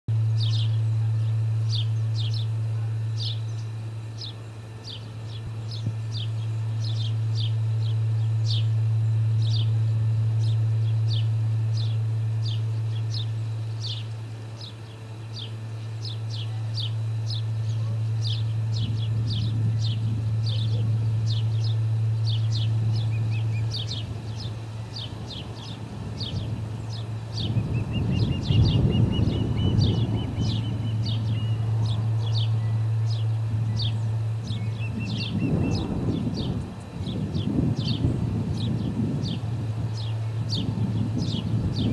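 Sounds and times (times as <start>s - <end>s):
loud low hum: 0.1s - 41.9s
young ospreys chirping: 10.4s - 41.9s.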